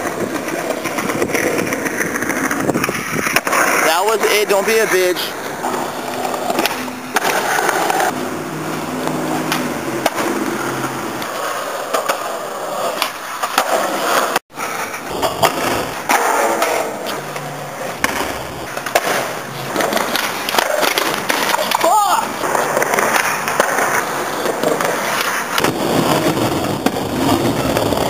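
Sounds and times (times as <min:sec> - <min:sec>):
skateboard pops and clacks: 0:00.0 - 0:03.9, 0:06.1 - 0:08.2, 0:09.5 - 0:10.4, 0:12.9 - 0:14.4, 0:15.2 - 0:28.0
skateboard wheels rolling on concrete: 0:00.0 - 0:28.0.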